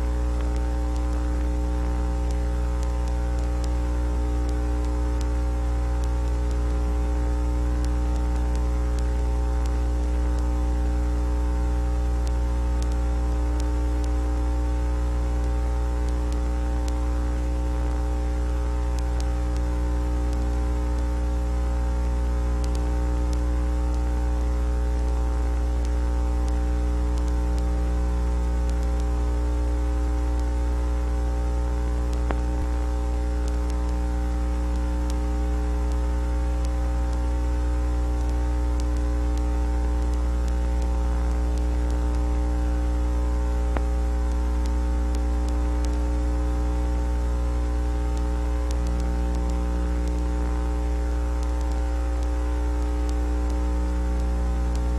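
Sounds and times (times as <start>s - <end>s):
faint static hiss: 0.0s - 54.9s
low electrical hum: 0.0s - 54.9s.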